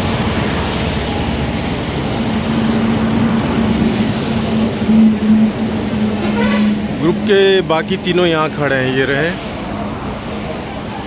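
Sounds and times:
motorcycle engine drone: 0.0s - 8.1s
wind and road noise: 0.0s - 11.0s.

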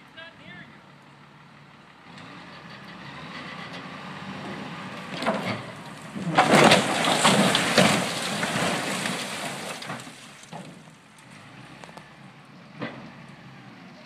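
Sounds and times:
metal crunching: 3.8s - 11.4s
cracking: 4.5s - 12.1s
railway car crashing onto its side: 5.1s - 10.9s.

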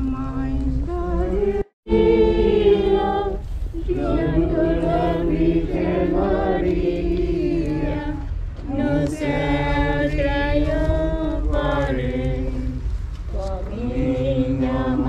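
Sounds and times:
group singing a hymn: 0.0s - 15.0s.

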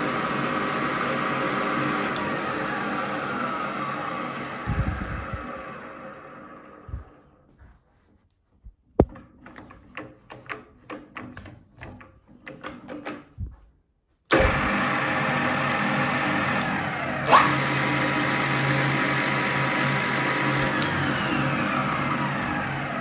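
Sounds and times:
drill press motor humming: 0.0s - 7.2s, 14.3s - 23.0s.

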